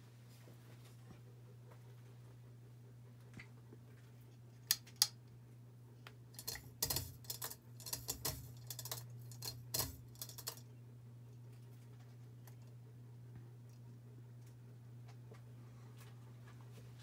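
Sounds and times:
ceiling fan humming: 0:00.0 - 0:17.0
light metallic clicks and rattles: 0:06.3 - 0:10.7.

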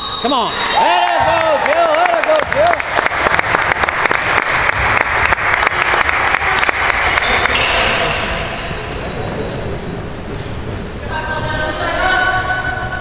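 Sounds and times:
spectators clapping: 0:00.7 - 0:07.7.

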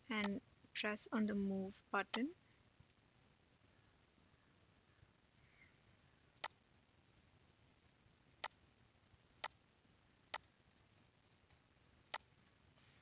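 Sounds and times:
faint room hiss: 0:00.0 - 0:13.0
computer mouse clicking: 0:00.2 - 0:00.4, 0:10.3 - 0:10.6.

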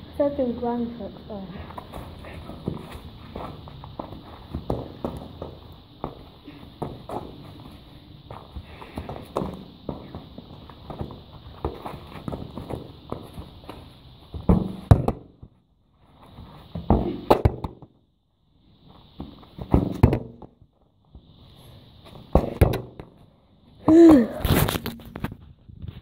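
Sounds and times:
footsteps: 0:01.5 - 0:17.1
football kicked and bounced: 0:01.7 - 0:15.5, 0:16.7 - 0:18.0, 0:19.2 - 0:20.6, 0:22.1 - 0:23.2, 0:23.9 - 0:24.7.

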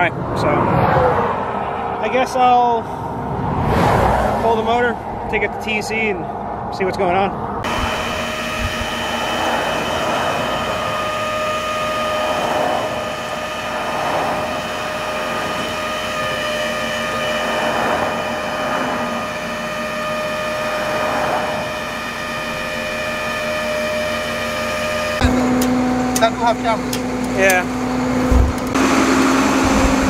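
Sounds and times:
passing highway traffic: 0:00.0 - 0:30.0
hydraulic winch whine: 0:07.6 - 0:30.0.

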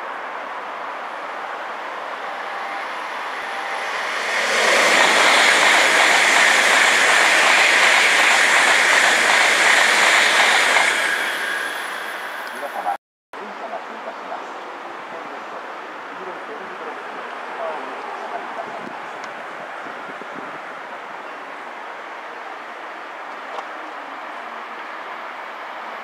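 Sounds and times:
high-speed train rushing past: 0:00.0 - 0:13.0.

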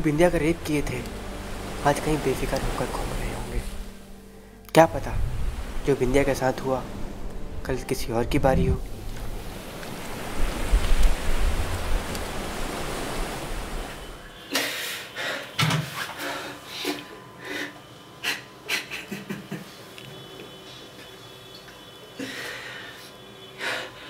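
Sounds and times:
sea waves washing on beach: 0:00.0 - 0:04.0, 0:04.8 - 0:07.2, 0:08.9 - 0:14.4.

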